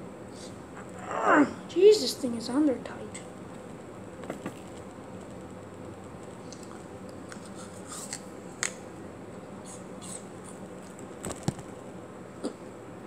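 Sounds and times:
steady low hum: 0.0s - 13.0s
person biting and chewing food: 6.4s - 8.8s.

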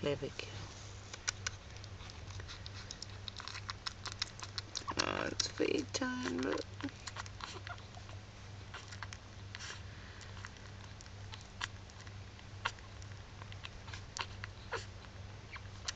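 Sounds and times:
steady low hum: 0.0s - 15.9s
puppies suckling: 0.9s - 15.9s.

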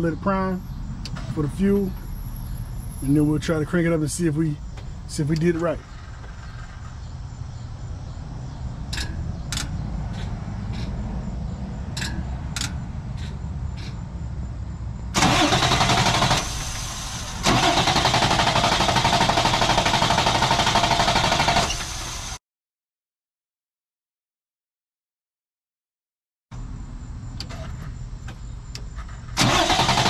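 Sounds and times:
diesel engine starter cranking: 5.1s - 7.6s, 15.1s - 22.4s, 27.4s - 27.9s, 28.6s - 30.0s.

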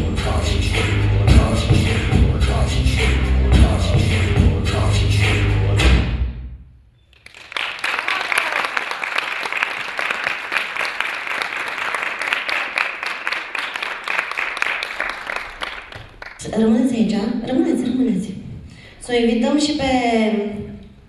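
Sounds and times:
audience clapping: 7.1s - 16.4s.

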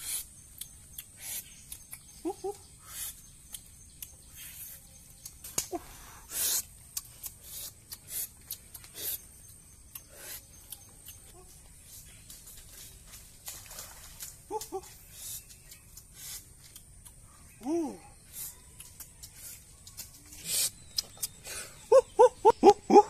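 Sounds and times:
dry leaves rustling and crackling: 11.8s - 15.0s.

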